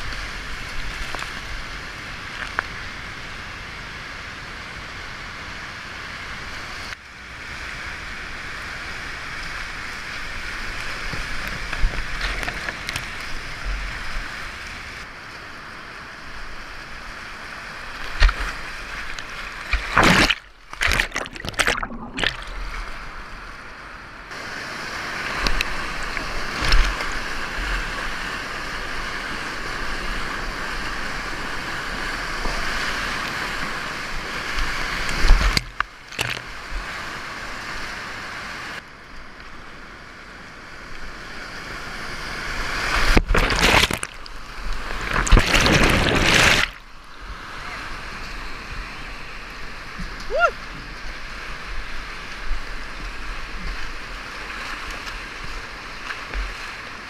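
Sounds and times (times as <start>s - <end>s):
whitewater rushing: 16.2s - 38.8s
water splashing against boat: 17.9s - 23.2s, 32.2s - 37.6s, 42.6s - 48.6s.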